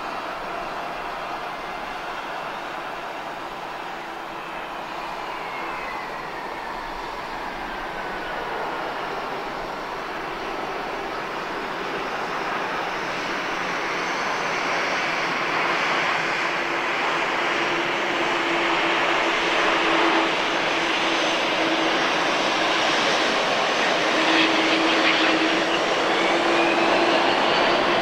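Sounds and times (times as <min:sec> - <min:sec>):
jet engines at high power: 0:00.0 - 0:28.0
rising engine whine: 0:16.9 - 0:28.0.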